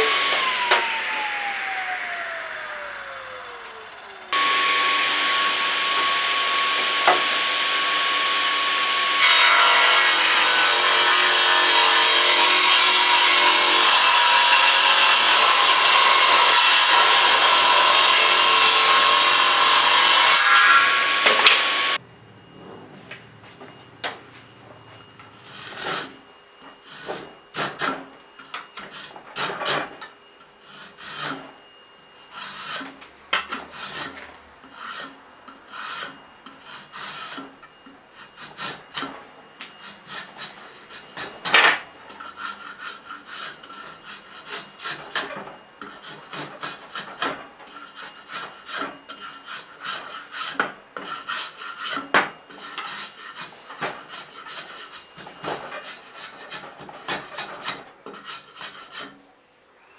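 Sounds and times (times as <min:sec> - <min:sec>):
hand file scraping wood: 0:26.8 - 0:28.0, 0:30.6 - 0:31.6, 0:32.2 - 0:41.5, 0:42.1 - 0:59.2.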